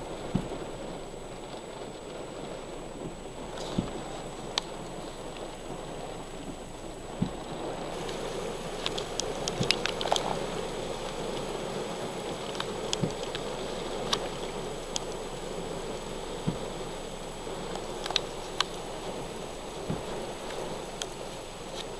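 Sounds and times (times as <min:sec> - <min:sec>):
gusting wind: 0:00.0 - 0:21.9
heavy rain pouring: 0:00.0 - 0:21.9
sharp ticks: 0:08.0 - 0:15.3, 0:17.7 - 0:18.8, 0:19.8 - 0:21.9.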